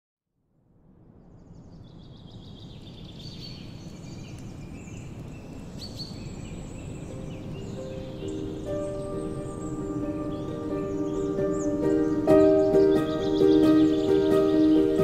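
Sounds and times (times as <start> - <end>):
small birds chirping: 1.2 - 15.0.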